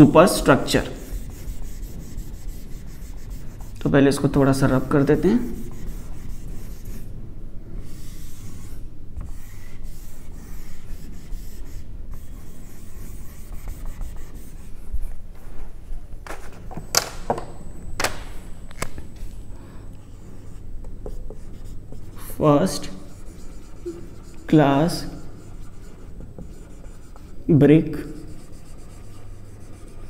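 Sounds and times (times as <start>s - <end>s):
duster rubbing a whiteboard: 0.3s - 3.8s, 5.1s - 7.1s, 7.7s - 15.6s, 20.0s - 30.0s.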